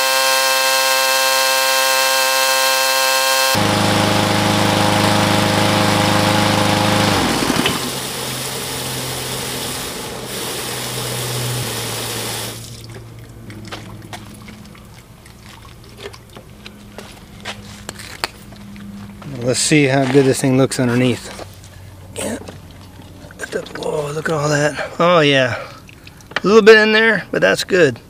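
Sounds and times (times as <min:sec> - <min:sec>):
mower engine winding down: 0:00.0 - 0:12.9
hose water rushing: 0:00.0 - 0:16.2
water dripping: 0:12.5 - 0:16.8, 0:25.8 - 0:26.4.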